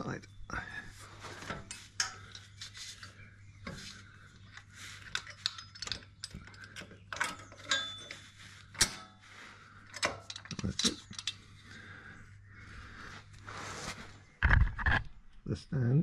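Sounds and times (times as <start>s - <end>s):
metallic clicks and rattles: 1.4s - 9.2s, 9.8s - 11.5s.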